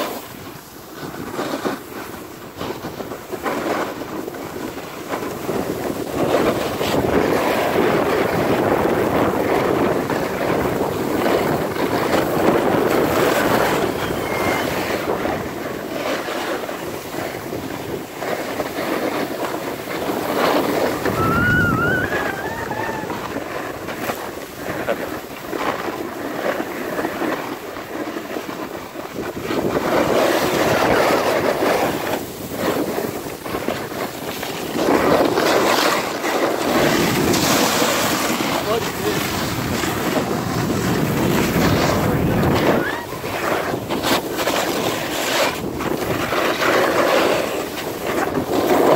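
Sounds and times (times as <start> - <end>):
snowboards scraping on packed snow: 0.0 - 48.9
wind on microphone: 0.0 - 48.9
high warbling tone: 21.0 - 23.2.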